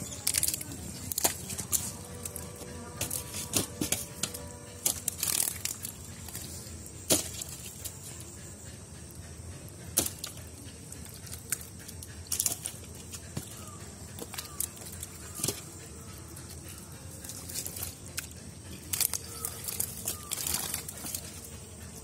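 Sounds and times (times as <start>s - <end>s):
fish flapping in mud: 3.0s - 6.5s, 18.9s - 21.4s.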